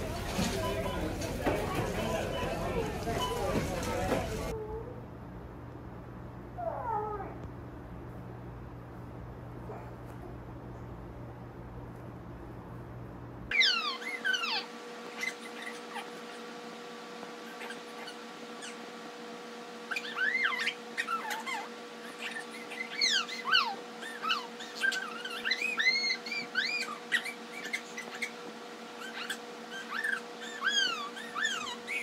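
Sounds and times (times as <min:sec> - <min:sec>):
faint steady hum: 0:00.0 - 0:32.0
baby squealing: 0:13.5 - 0:16.1, 0:19.9 - 0:28.3.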